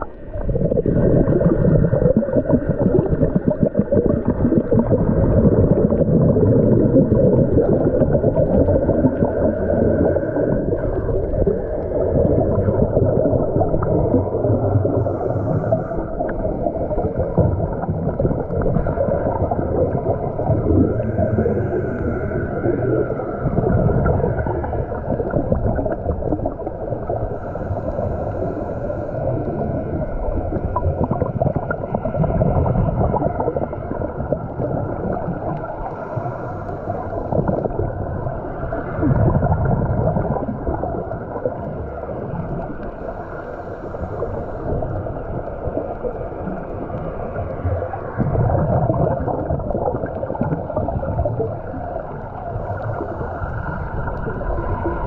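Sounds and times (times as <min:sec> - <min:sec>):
exhaled bubbles gurgling: 0:00.0 - 0:55.0
low underwater rumble: 0:00.0 - 0:55.0
scuba regulator breathing: 0:07.7 - 0:13.0, 0:14.6 - 0:17.8, 0:19.2 - 0:25.6, 0:26.7 - 0:31.0, 0:35.3 - 0:37.8, 0:42.7 - 0:45.3, 0:52.4 - 0:54.8.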